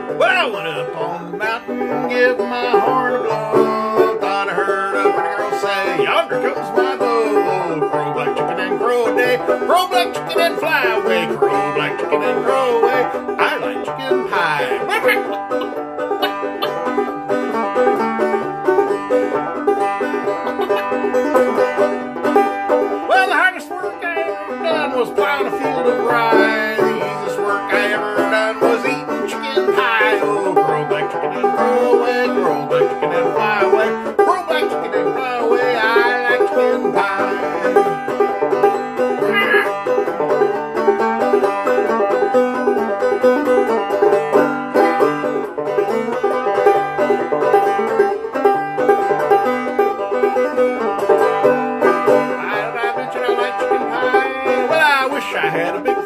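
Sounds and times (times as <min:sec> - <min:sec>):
man singing: 0:00.0 - 0:15.6, 0:23.1 - 0:38.2, 0:39.2 - 0:39.8, 0:52.2 - 0:56.0
banjo playing: 0:00.0 - 0:56.0.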